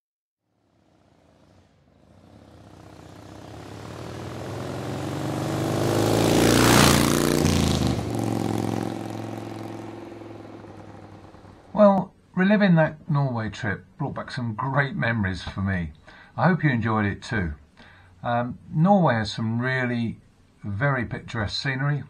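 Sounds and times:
vehicle engine passing by: 0:00.5 - 0:11.8.

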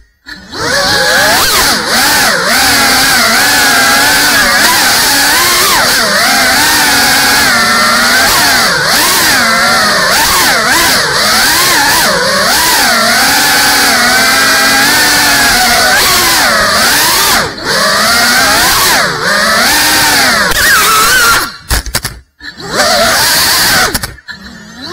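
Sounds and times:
drone motors and propellers whining: 0:00.0 - 0:21.8, 0:22.4 - 0:24.9.

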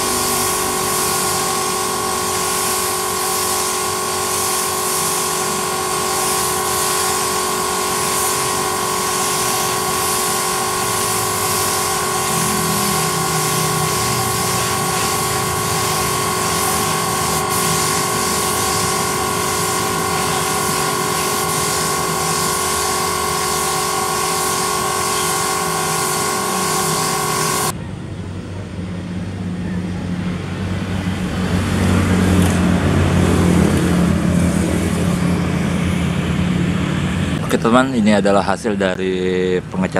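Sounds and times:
spray gun hissing: 0:00.0 - 0:27.7
compressed air line whining: 0:00.0 - 0:27.8.

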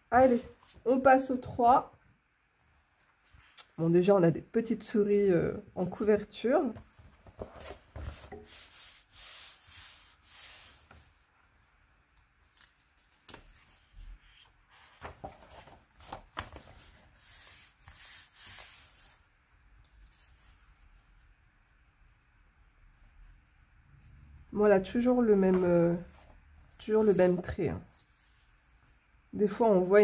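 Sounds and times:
paper rustling and rubbing: 0:07.0 - 0:11.2, 0:12.3 - 0:19.2.

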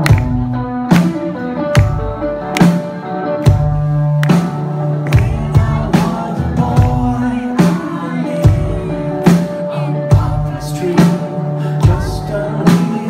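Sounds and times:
rock band playing: 0:00.0 - 0:13.0
man singing: 0:04.6 - 0:13.0.

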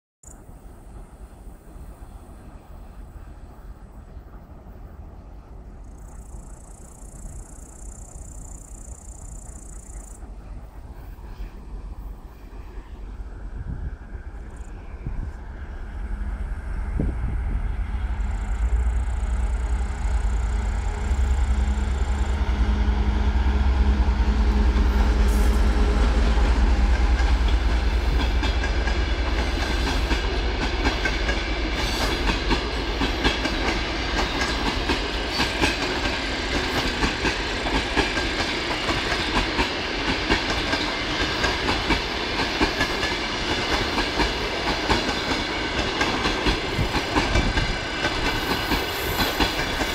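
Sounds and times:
diesel locomotive engine rumble: 0:00.3 - 0:49.9
train wheels clickety-clack: 0:23.4 - 0:49.9.

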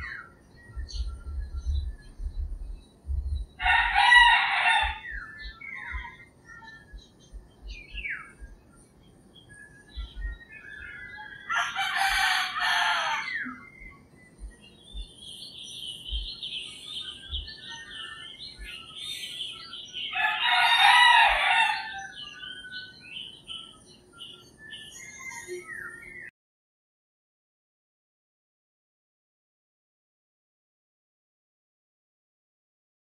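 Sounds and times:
small birds chirping: 0:00.0 - 0:26.3
roosters crowing: 0:03.6 - 0:06.1, 0:11.1 - 0:13.6, 0:20.0 - 0:22.4.

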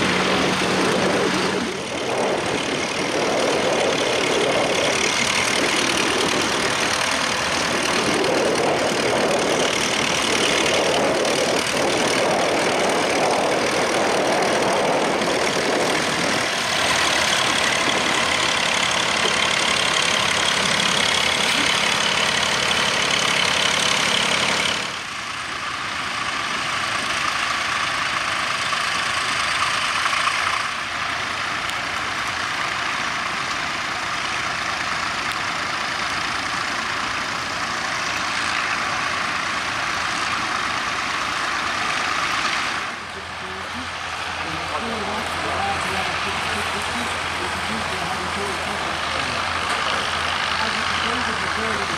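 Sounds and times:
tractor engines running: 0:00.0 - 0:51.9.

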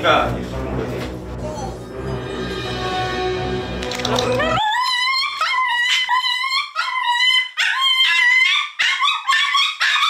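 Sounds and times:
small dog screaming: 0:04.4 - 0:10.0.

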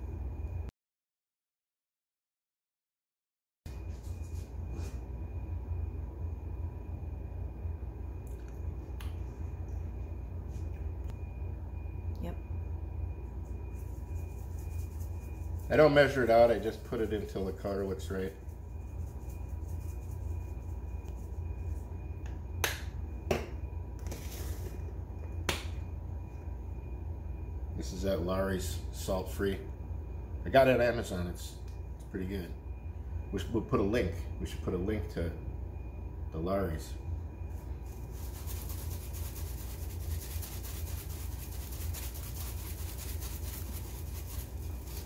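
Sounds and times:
steady low hum: 0:00.0 - 0:00.7, 0:03.7 - 0:45.0
seasoning granules rattling in shaker: 0:13.7 - 0:15.8, 0:37.8 - 0:45.0.

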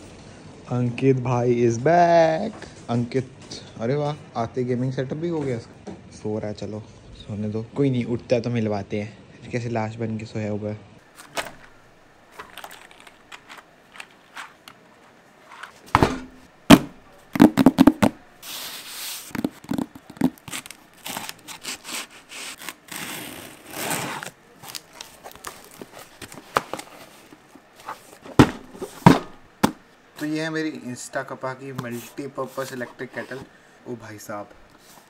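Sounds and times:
plastic packaging crinkling: 0:11.1 - 0:15.8, 0:17.4 - 0:28.7
cardboard parcel tearing: 0:18.5 - 0:27.2.

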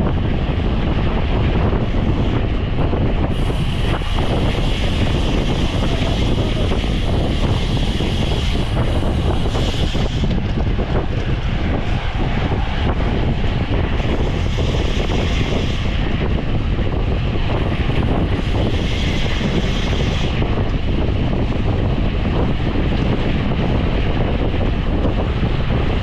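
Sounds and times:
wind rushing over microphone: 0:00.0 - 0:26.0.

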